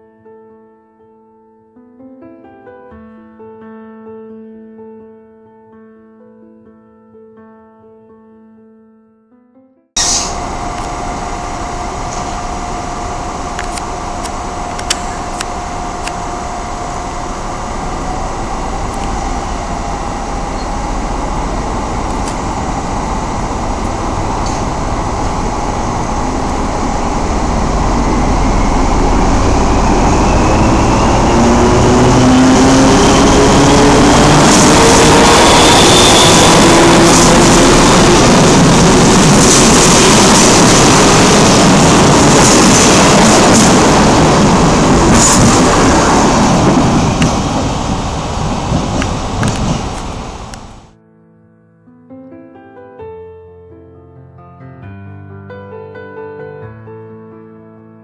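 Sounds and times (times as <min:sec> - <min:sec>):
diesel locomotive engine: 0:10.0 - 0:50.9
train coaches rumbling past: 0:10.0 - 0:50.9.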